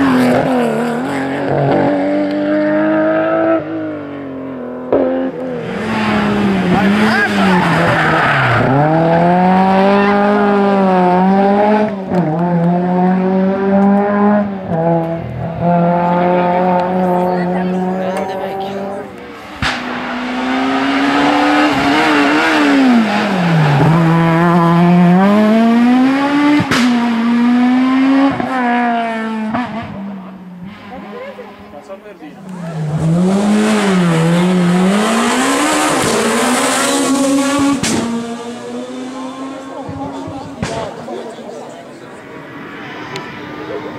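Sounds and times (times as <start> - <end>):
car engine accelerating hard: 0.0 - 43.9
sharp crack: 19.5 - 20.0, 40.6 - 41.2.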